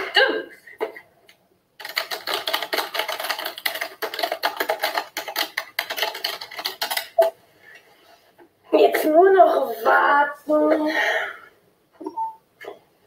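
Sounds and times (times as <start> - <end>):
fast keyboard typing: 1.8 - 7.3.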